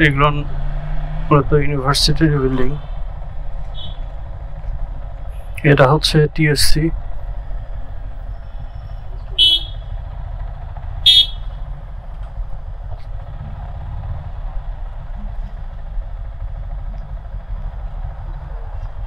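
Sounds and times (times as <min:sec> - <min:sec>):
low rumble of moving ride: 0:00.0 - 0:19.0
vehicle horn toots: 0:03.7 - 0:04.1, 0:09.3 - 0:10.0, 0:11.0 - 0:11.6.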